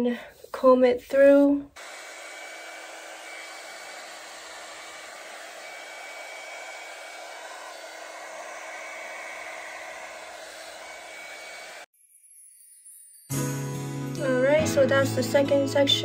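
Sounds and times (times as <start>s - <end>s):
hair dryer blowing air: 1.8s - 11.9s
hair dryer motor hum: 1.8s - 11.9s.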